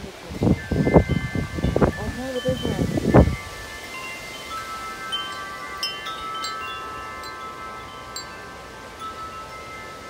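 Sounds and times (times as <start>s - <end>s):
faint rush of wind: 0.0s - 10.0s
wind chime ringing: 0.5s - 10.0s.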